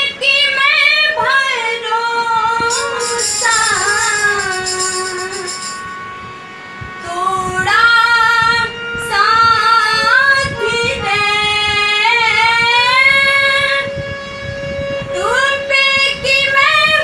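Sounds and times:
girl singing: 0.0 - 5.6
harmonium: 0.0 - 17.0.

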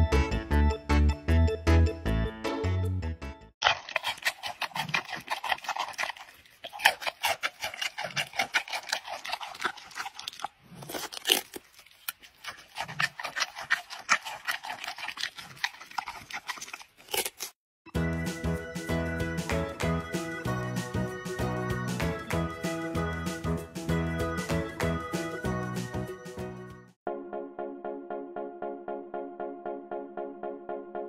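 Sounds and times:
panda crunching and chewing: 3.6 - 17.6.

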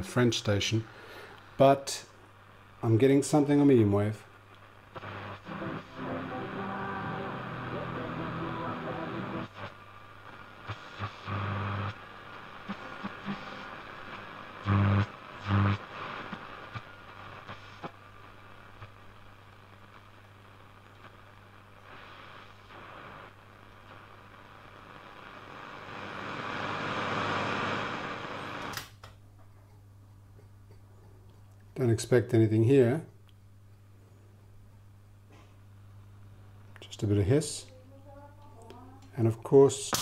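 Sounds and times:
radio static and crackle: 0.0 - 28.9
low hum: 4.4 - 15.9
bursts of radio signal: 4.8 - 17.9.

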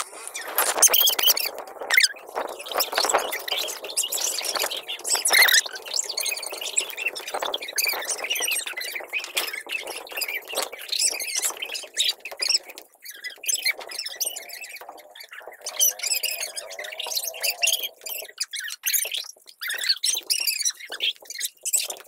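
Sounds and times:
children squealing and laughing: 13.8 - 18.8.

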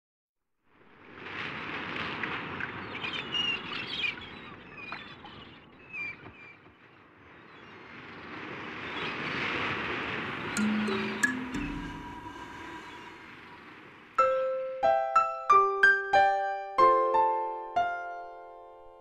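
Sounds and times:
ocean waves washing on shore: 0.8 - 5.7, 6.8 - 16.2
bird chirps: 10.5 - 13.7.

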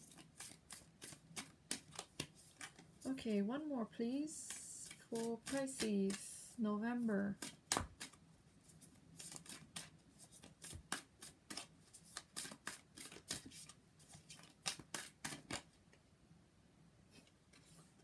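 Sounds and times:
cards being shuffled: 0.0 - 2.9, 4.5 - 6.3, 7.4 - 15.7.

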